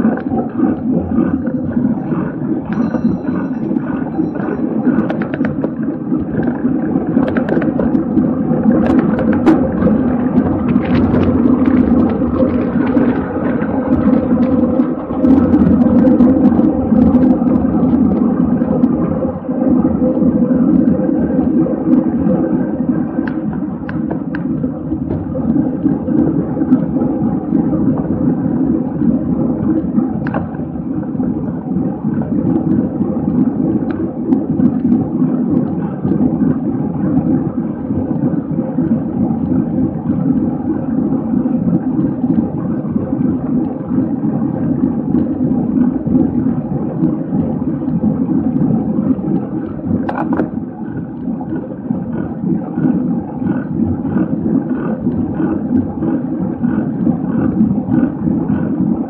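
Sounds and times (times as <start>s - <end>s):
wind rush on microphone: 0.0s - 59.0s.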